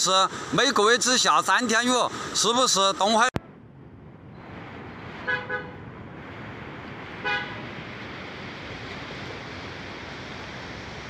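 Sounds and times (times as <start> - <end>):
wind: 0.0 - 11.0
vehicle horn toots: 5.3 - 5.8, 7.2 - 7.6
river rushing: 6.2 - 11.0.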